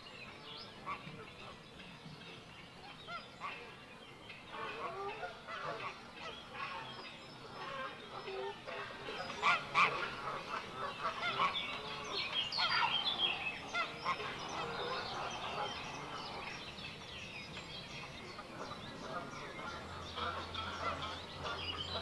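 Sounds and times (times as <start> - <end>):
geese honking: 4.5 - 6.9, 7.5 - 16.6, 18.2 - 22.0.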